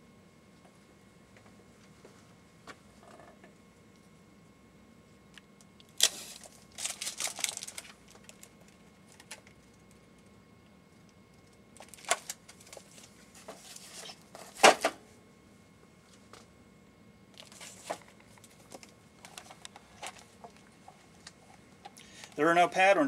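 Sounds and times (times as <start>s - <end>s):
pages rustling: 6.0s - 8.5s.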